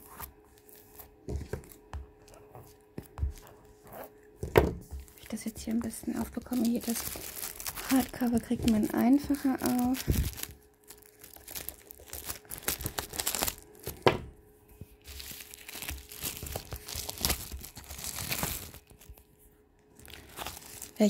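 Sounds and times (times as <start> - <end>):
plastic shrink-wrap tearing: 5.0 - 14.0, 15.0 - 19.3, 19.9 - 21.0.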